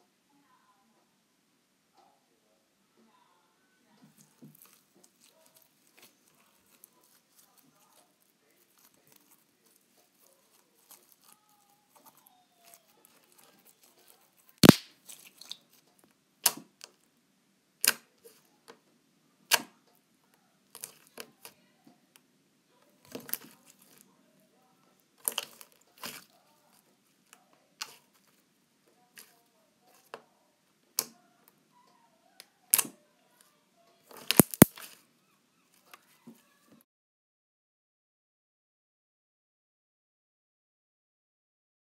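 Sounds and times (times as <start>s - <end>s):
foam toys rustling in plastic bowl: 4.2s - 15.8s.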